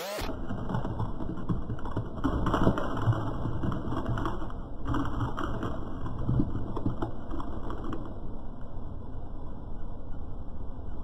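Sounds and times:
car rolling low rumble: 0.3s - 11.0s.

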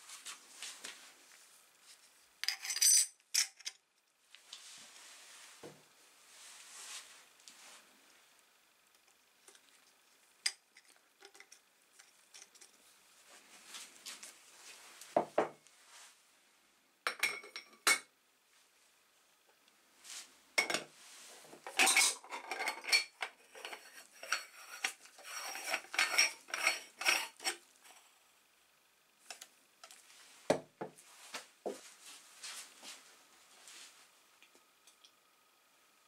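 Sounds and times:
metal pot parts clinking: 2.4s - 3.8s, 21.7s - 27.6s.

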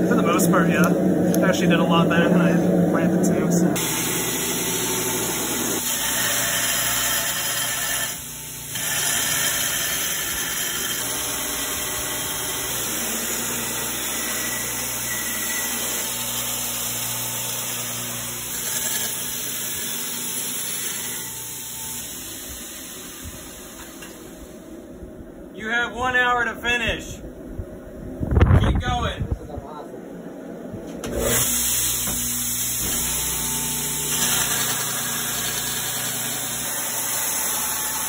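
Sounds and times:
belt grinder grinding steel: 3.8s - 24.2s, 31.1s - 38.0s.

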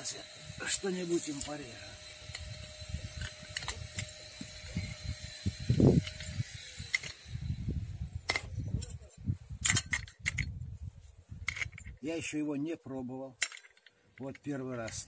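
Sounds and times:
metal clicks and handling noise: 6.9s - 7.2s, 8.3s - 10.5s, 11.4s - 12.0s, 13.4s - 15.0s.

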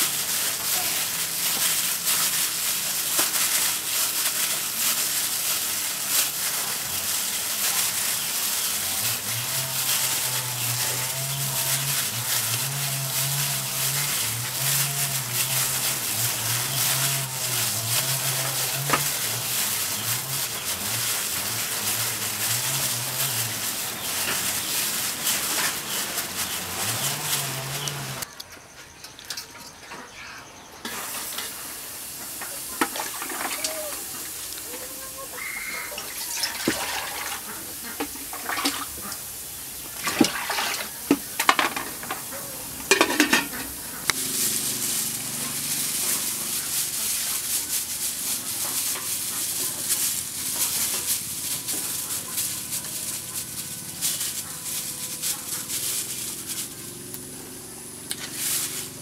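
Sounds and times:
steady hiss: 30.8s - 35.9s
metal pot and lid clanking: 40.2s - 43.8s.

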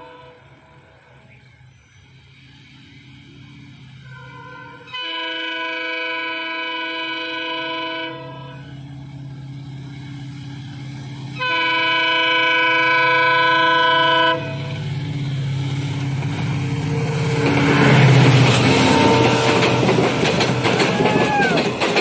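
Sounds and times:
locomotive air horn chords: 0.0s - 1.2s, 4.0s - 9.0s, 11.2s - 15.0s, 16.8s - 21.0s
locomotive engine drone: 0.0s - 22.0s.

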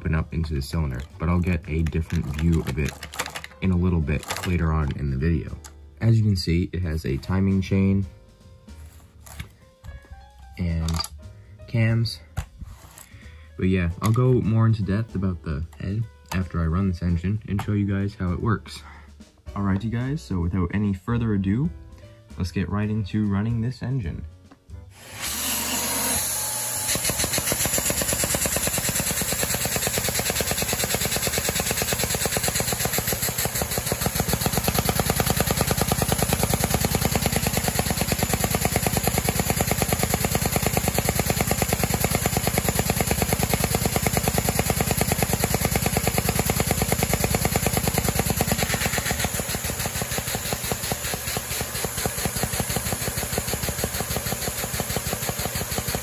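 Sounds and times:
model engine clattering: 1.0s - 3.6s, 27.2s - 56.0s.

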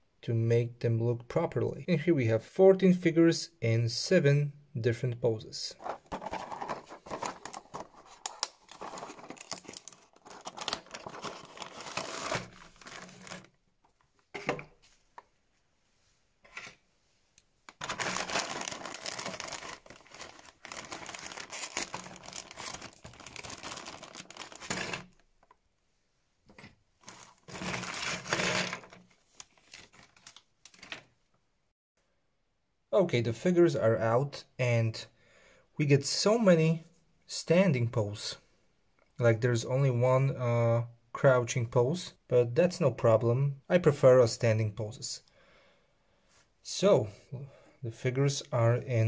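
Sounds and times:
plastic bag crinkling and tearing: 5.8s - 13.6s, 17.7s - 25.2s, 27.0s - 31.1s.

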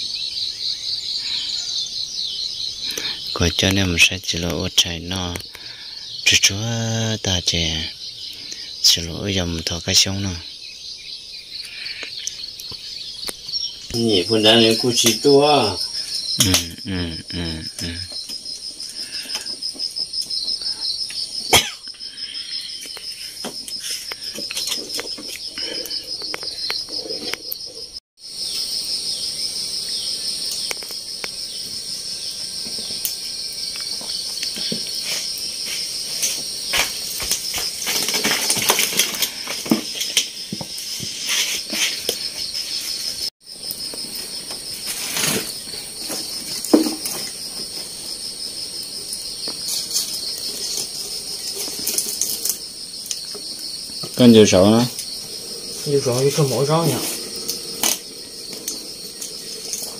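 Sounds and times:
insects chirring: 0.0s - 59.9s
pots and wood clattering: 13.9s - 27.9s, 32.4s - 48.2s, 49.1s - 59.9s.

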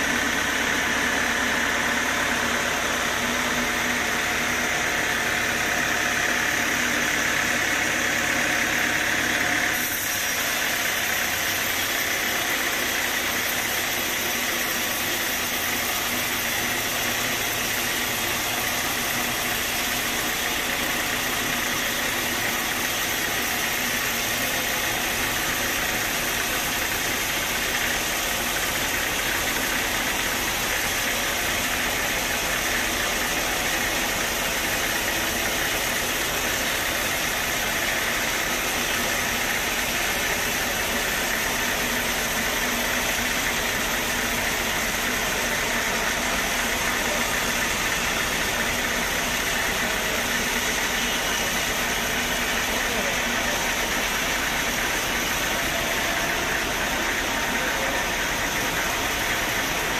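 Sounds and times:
band sawmill running: 0.0s - 59.9s.

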